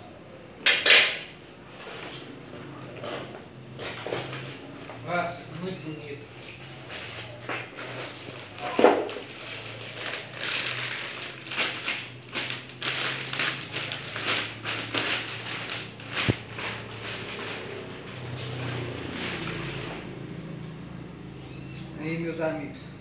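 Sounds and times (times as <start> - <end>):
packaging crinkling and rustling: 6.5 - 20.2.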